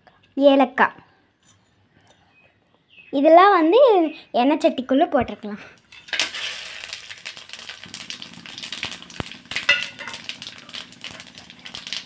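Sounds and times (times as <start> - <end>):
spices sizzling in hot oil: 5.9 - 12.0.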